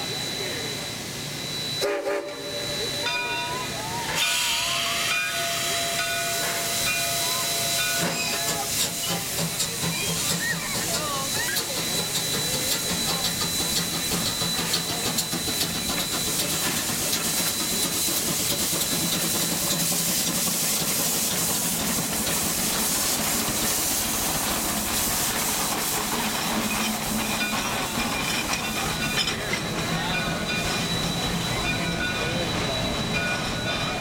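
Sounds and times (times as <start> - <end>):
steam locomotive hissing: 0.0 - 34.0
clicks of locomotive wheels: 7.9 - 34.0.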